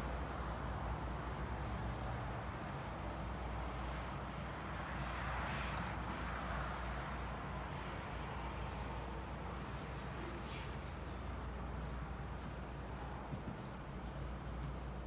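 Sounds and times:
hoofbeats on sand: 0:07.9 - 0:15.0.

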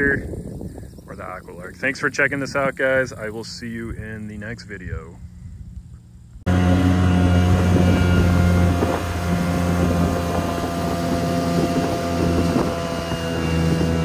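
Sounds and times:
wind on microphone: 0:00.0 - 0:14.0
jet boat engine droning: 0:06.0 - 0:14.0.

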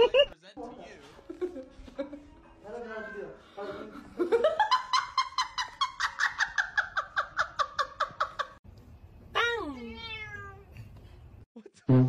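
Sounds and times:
cat meowing: 0:09.9 - 0:10.7.

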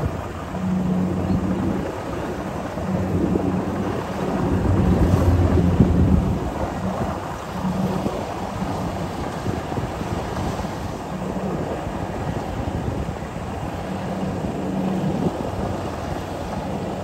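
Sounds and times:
combine harvester engine running: 0:00.0 - 0:08.8
wind rumble on microphone: 0:00.0 - 0:17.0.

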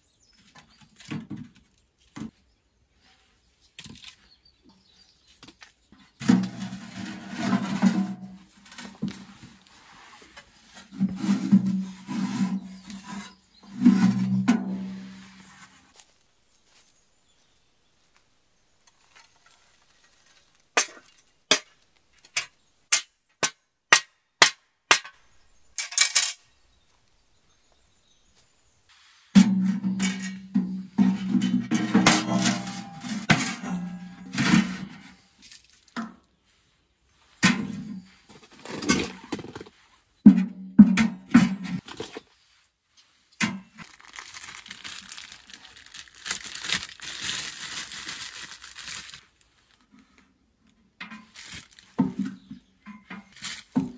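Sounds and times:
metal ash tray scraping: 0:06.2 - 0:09.0, 0:29.4 - 0:35.2
footsteps crunching through dry leaves: 0:43.6 - 0:49.7.

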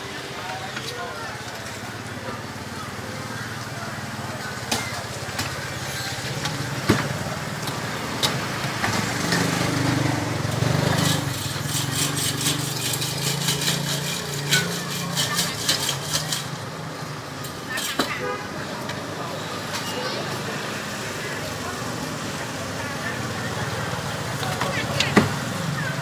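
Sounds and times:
street traffic: 0:00.0 - 0:26.0.

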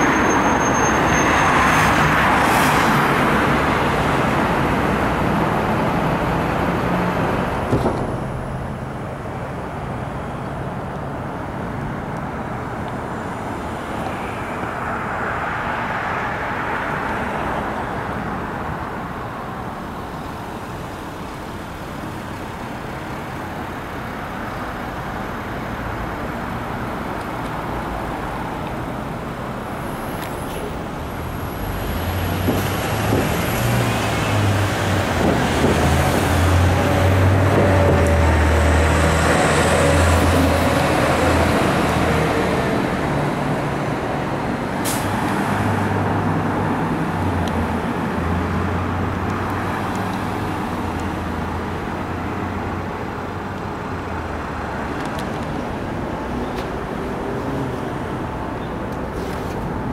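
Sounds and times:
street traffic: 0:00.0 - 0:59.9
heavy vehicle engine rumble: 0:03.2 - 0:14.8.

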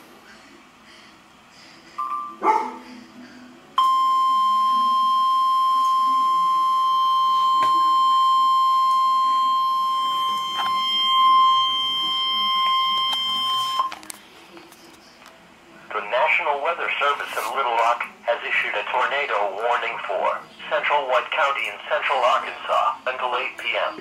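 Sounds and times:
shrill electronic alert tone: 0:04.0 - 0:13.9.

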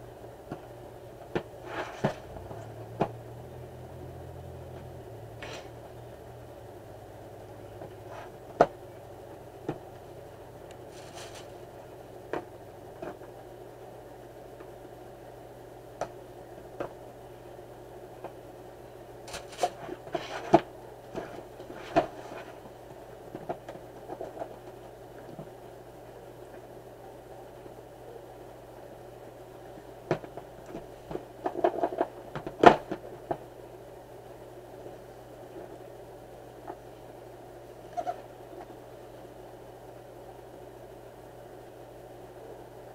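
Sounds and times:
low hum: 0:00.0 - 0:14.4
rustle: 0:00.0 - 0:42.9
steady low hum: 0:00.0 - 0:42.9.

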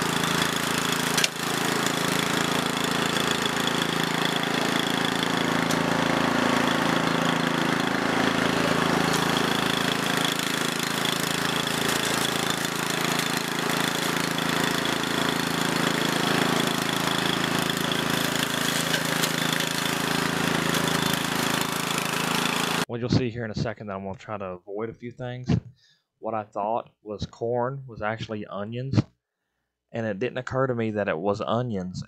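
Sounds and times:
mower engine running: 0:00.0 - 0:22.9.

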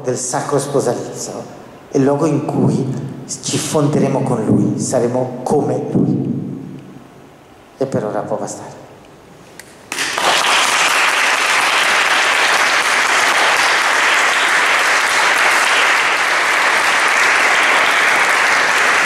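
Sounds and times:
audience applauding: 0:09.9 - 0:19.0.

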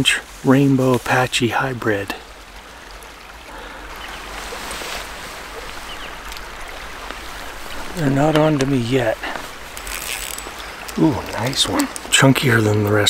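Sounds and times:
creek water rushing: 0:00.0 - 0:13.0
faint clicks: 0:05.6 - 0:13.0.

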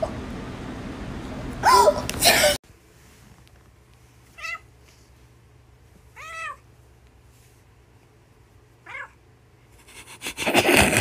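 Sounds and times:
cat meowing: 0:04.4 - 0:04.7, 0:06.2 - 0:06.6, 0:08.8 - 0:09.2.

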